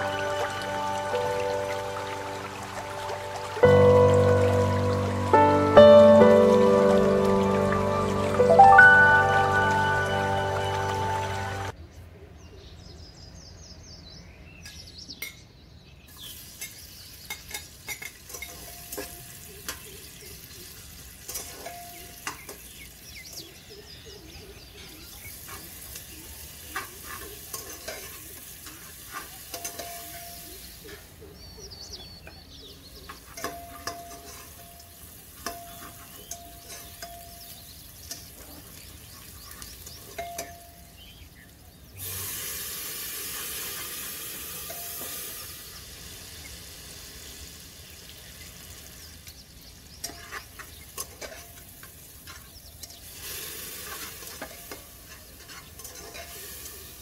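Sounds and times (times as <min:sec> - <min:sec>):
onions sizzling in hot oil: 0:00.0 - 0:11.7, 0:16.1 - 0:23.7, 0:25.0 - 0:31.0, 0:33.1 - 0:57.0
water pouring into a pot: 0:00.0 - 0:11.7, 0:42.0 - 0:48.9
spoon scraping a pot: 0:53.9 - 0:56.4.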